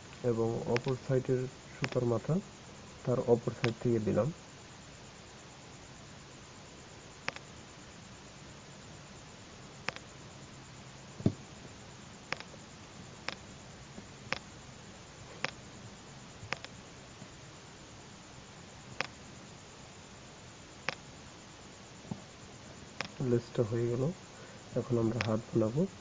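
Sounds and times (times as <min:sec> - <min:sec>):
faint hum and hiss: 0:00.0 - 0:26.0
plastic beads clicking together: 0:00.7 - 0:01.0
dull knock: 0:11.2 - 0:11.4.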